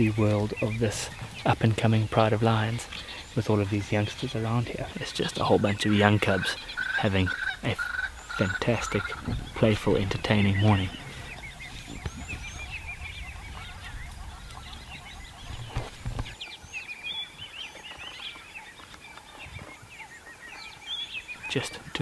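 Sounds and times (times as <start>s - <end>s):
birds chirping and whistling: 0.0s - 22.0s.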